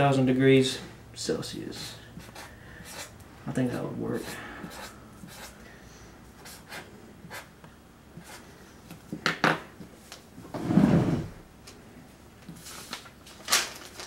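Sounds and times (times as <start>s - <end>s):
pen scratching on paper: 1.8s - 3.1s, 4.2s - 5.6s, 6.4s - 7.5s, 8.2s - 8.4s.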